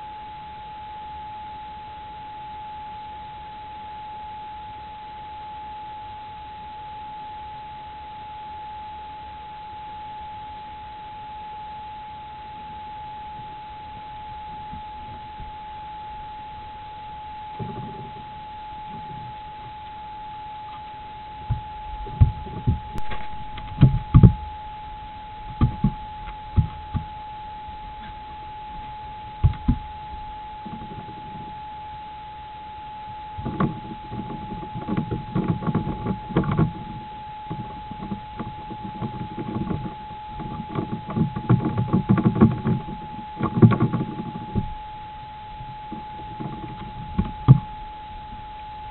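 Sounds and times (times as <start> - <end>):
electronic tone and hiss: 0.0 - 48.9
animal knocking inside a box: 25.5 - 27.1.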